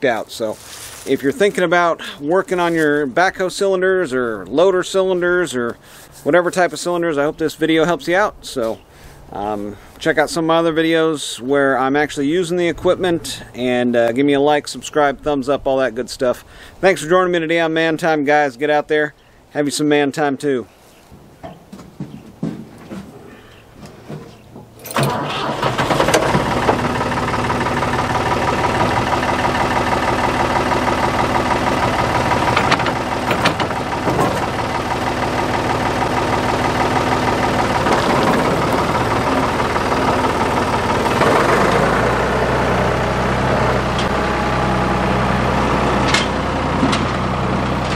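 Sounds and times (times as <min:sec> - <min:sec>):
backhoe engine starting and running: 0:22.3 - 0:47.9.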